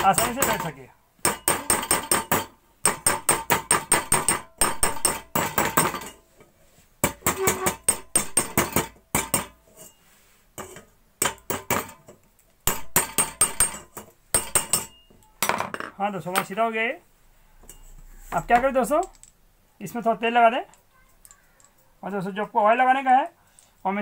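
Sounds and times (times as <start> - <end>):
hammer tapping metal rod: 0.0 - 6.1, 7.0 - 9.6, 12.7 - 15.2.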